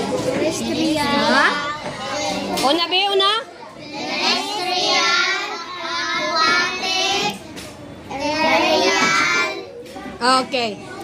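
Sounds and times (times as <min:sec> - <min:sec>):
children chanting in unison: 0:03.8 - 0:07.4.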